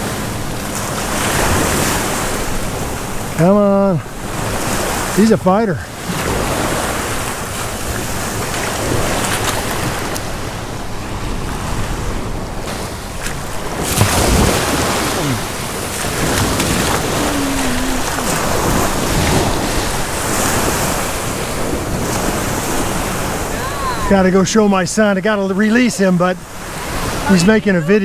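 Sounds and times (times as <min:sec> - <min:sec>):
small waves lapping at shore: 0:00.0 - 0:28.0
wind on microphone: 0:06.0 - 0:24.1
fish thrashing in water: 0:13.3 - 0:21.1.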